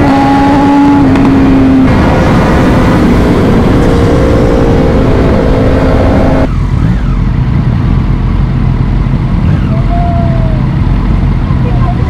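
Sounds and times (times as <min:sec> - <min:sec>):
motorcycle engine running hard: 0:00.0 - 0:12.0.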